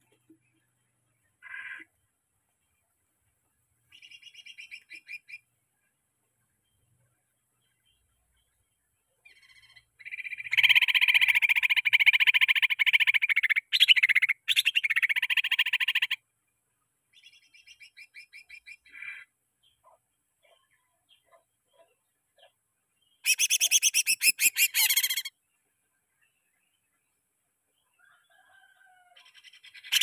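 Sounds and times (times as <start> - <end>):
bird chirps: 3.9 - 16.2, 17.1 - 30.0
bird fast trill: 9.3 - 16.2, 23.2 - 25.3.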